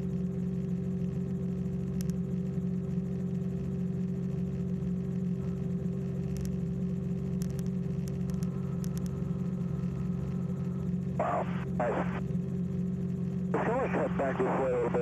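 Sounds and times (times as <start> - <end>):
small plane engine in cabin: 0.0 - 15.0
faint clicks: 7.3 - 9.1.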